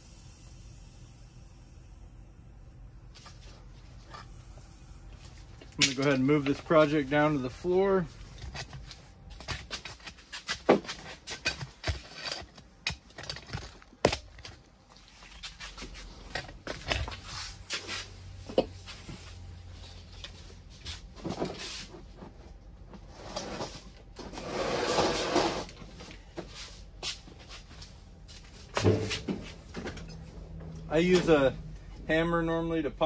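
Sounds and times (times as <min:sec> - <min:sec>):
rustling noise: 0:15.0 - 0:29.8.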